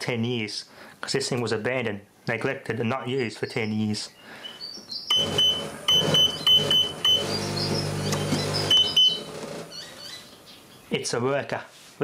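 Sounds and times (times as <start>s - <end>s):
short beeps: 5.1s - 9.2s
dishwasher motor humming: 5.1s - 10.0s.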